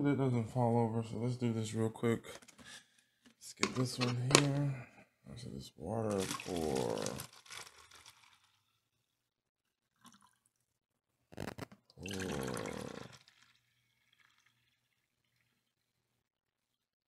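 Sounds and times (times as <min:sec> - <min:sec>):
liquid gurgling into bottle: 0:06.1 - 0:08.6, 0:11.4 - 0:15.7.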